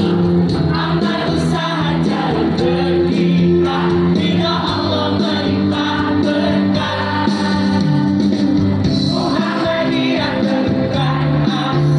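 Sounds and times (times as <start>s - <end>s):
girls choir singing: 0.0s - 11.9s.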